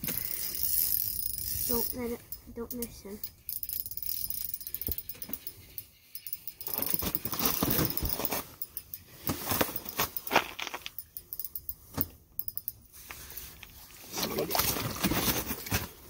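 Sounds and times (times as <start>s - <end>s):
light metallic rattles: 0.0s - 14.1s
clothing and gear rustling: 6.2s - 11.0s.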